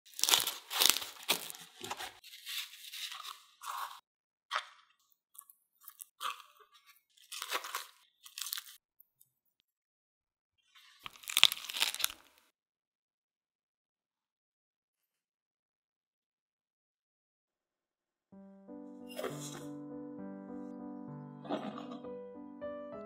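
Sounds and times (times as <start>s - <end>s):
bread rustling and crinkling: 0.1s - 4.0s, 5.9s - 8.8s, 10.8s - 12.5s.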